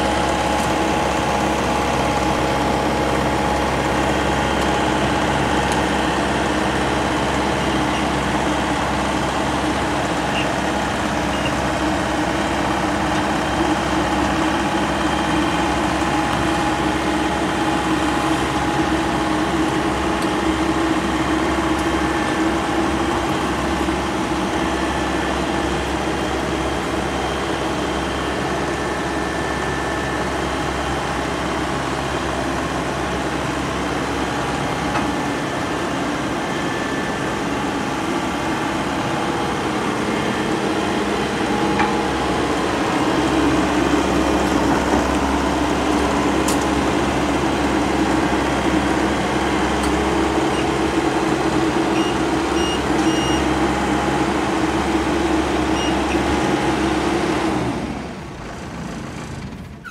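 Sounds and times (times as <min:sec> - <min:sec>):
diesel engine running: 0:00.0 - 0:59.9
short high beeps: 0:52.0 - 0:53.4.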